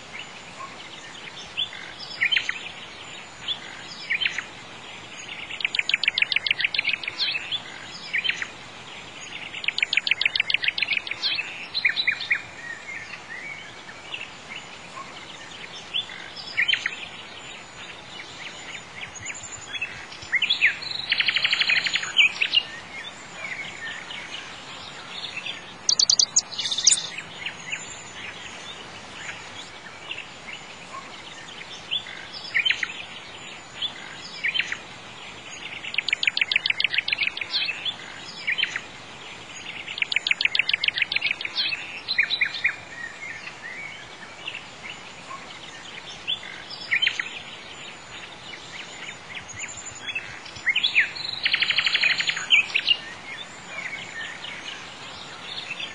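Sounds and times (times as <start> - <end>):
birds chirping and trilling: 0.0 - 55.9
faint background hiss: 0.0 - 55.9.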